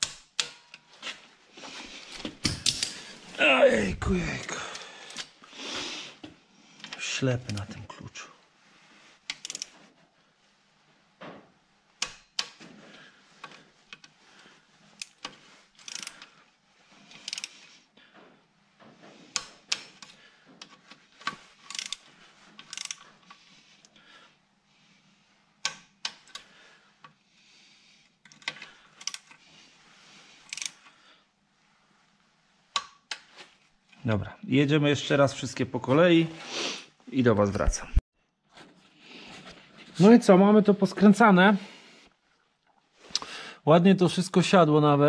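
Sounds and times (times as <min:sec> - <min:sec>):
socket wrench ratcheting: 0:15.0 - 0:16.2, 0:17.2 - 0:17.6, 0:21.6 - 0:23.0, 0:30.5 - 0:30.8.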